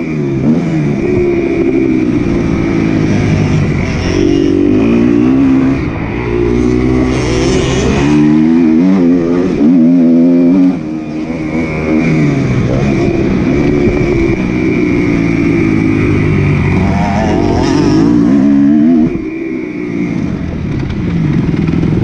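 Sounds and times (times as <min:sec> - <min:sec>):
motocross motorcycle engines revving: 0:00.0 - 0:22.0.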